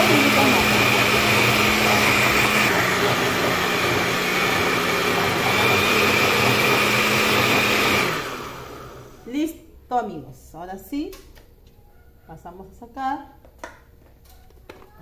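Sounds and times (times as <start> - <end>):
blender motor humming and whining: 0.0 - 9.2.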